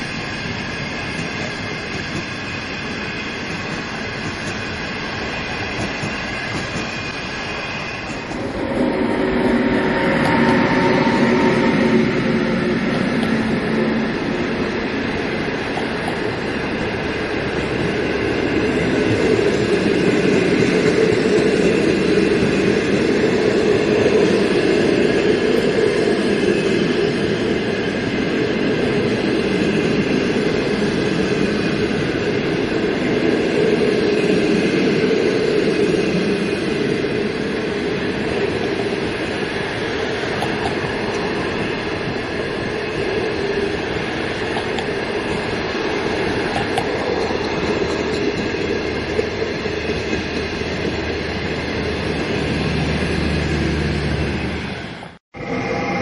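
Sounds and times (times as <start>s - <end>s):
steel wheels on rails: 0.0s - 56.0s
train coaches rolling past: 0.0s - 56.0s.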